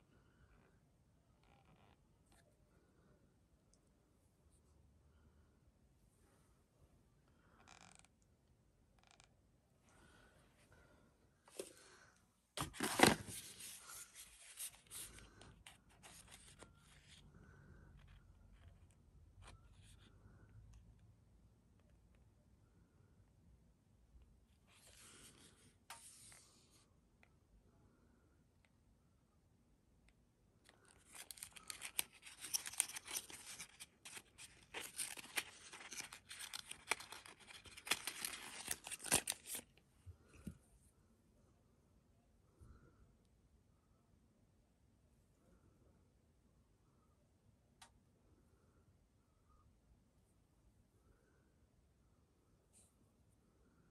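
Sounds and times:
cardboard carton rustling: 12.6s - 15.1s, 31.0s - 39.6s.

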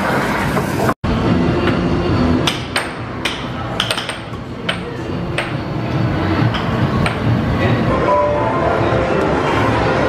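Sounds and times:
steady background noise: 0.0s - 10.0s
air hockey puck clacking: 2.4s - 5.7s, 6.5s - 7.3s.

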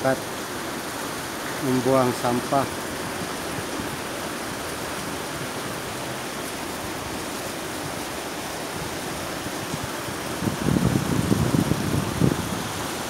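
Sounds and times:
river rushing over stones: 0.0s - 13.0s.

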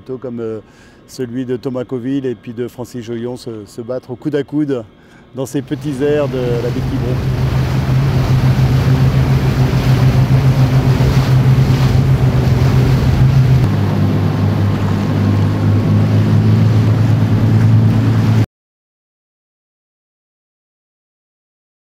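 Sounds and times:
wind: 0.0s - 18.4s
motorboat engine droning: 5.4s - 18.4s
water noise: 5.5s - 18.4s.

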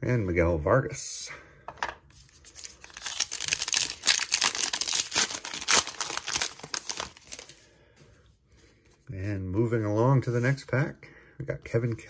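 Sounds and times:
wrapper tearing and crinkling: 2.2s - 7.5s.

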